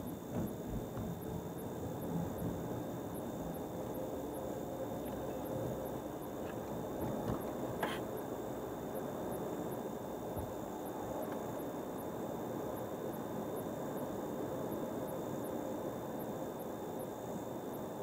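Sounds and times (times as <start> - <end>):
car road and tyre noise: 0.0 - 11.6
small knocks: 0.2 - 1.8, 6.4 - 8.1.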